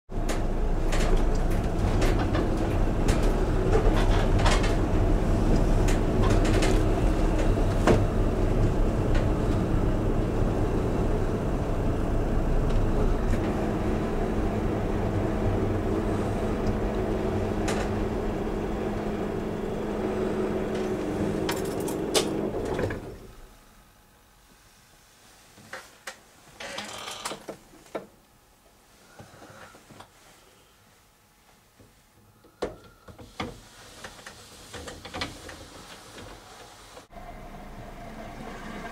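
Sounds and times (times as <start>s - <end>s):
road noise: 0.1s - 23.4s, 36.9s - 38.9s
car engine running: 0.8s - 23.1s.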